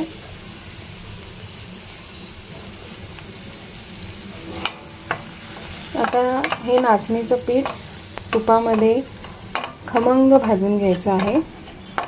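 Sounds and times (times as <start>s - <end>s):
ghee sizzling in a pan: 0.0s - 12.0s
spoon clicking against pan: 11.2s - 12.0s.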